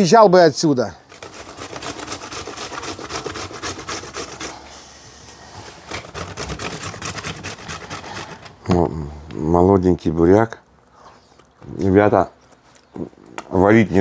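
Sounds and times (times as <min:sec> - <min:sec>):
beetroot grating on hand grater: 0:01.1 - 0:04.7, 0:05.6 - 0:08.6.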